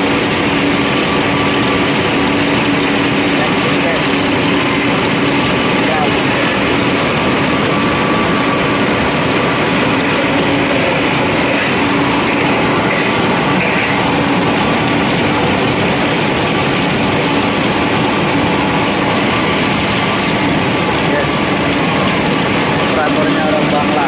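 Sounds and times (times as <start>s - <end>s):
pellet mill machinery running: 0.0s - 24.0s.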